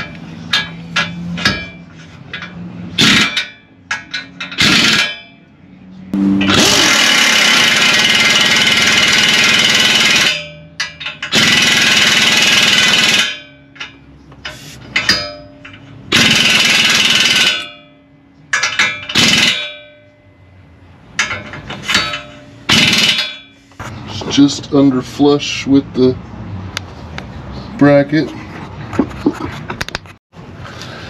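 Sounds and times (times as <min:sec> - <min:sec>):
impact wrench hammering: 0:00.0 - 0:05.5, 0:06.2 - 0:20.2, 0:21.1 - 0:23.6
tool clinks and knocks: 0:00.0 - 0:05.5, 0:09.9 - 0:11.4, 0:12.8 - 0:20.5, 0:21.1 - 0:24.4.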